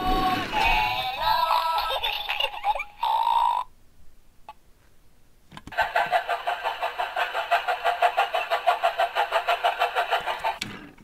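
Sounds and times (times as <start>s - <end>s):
toy train chugging: 5.7s - 11.0s.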